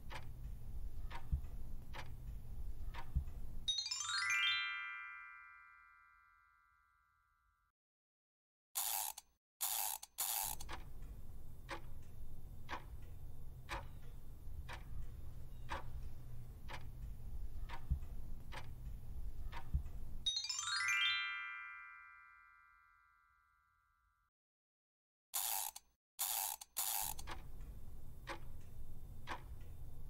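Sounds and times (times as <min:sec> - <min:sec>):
clock ticks: 0:00.0 - 0:03.7, 0:09.6 - 0:20.3, 0:25.4 - 0:30.0
rising chime tones: 0:03.7 - 0:07.0, 0:20.3 - 0:23.5.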